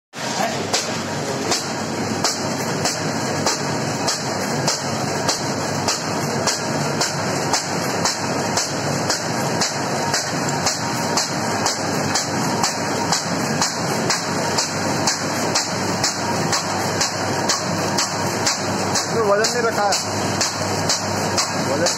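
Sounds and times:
machine clattering: 0.2 - 21.9
sharp repeating clack: 0.7 - 21.9.

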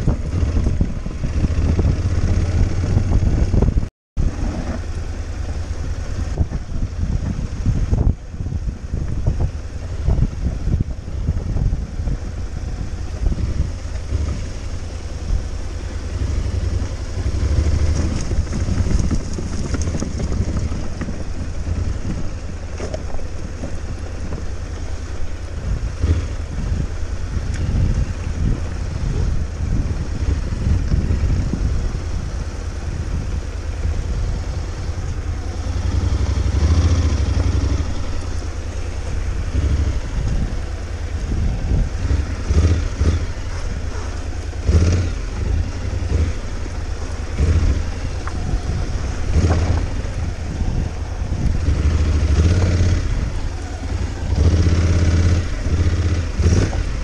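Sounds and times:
motorcycle engine rumbling: 0.0 - 57.0
stones knocking under tyres: 18.0 - 21.3.

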